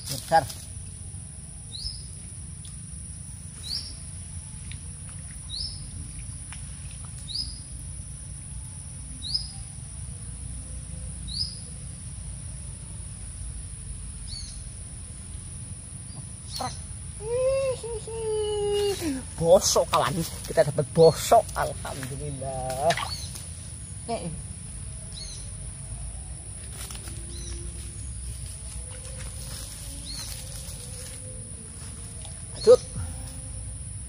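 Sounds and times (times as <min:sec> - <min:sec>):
low outdoor rumble: 0:00.0 - 0:34.0
bird chirping: 0:01.7 - 0:02.2, 0:03.5 - 0:04.1, 0:05.4 - 0:06.0, 0:18.4 - 0:33.1
steady high-pitched drone: 0:24.8 - 0:34.0.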